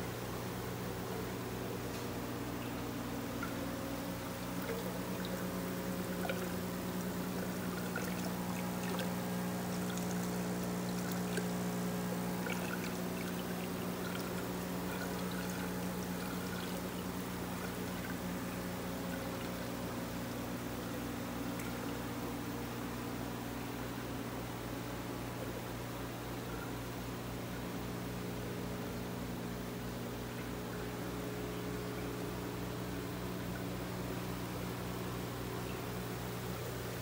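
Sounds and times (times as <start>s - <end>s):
low motor hum: 0.0s - 24.0s
water trickling and splashing: 2.6s - 20.1s.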